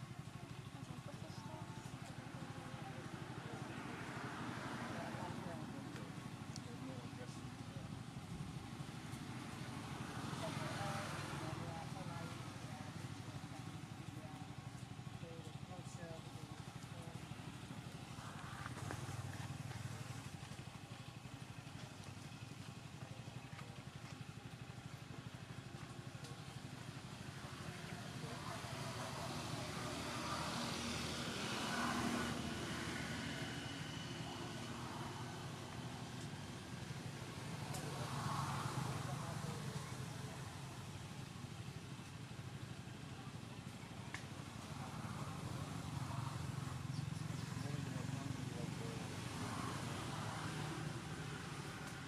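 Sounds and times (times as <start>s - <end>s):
engine running: 0.0s - 52.0s.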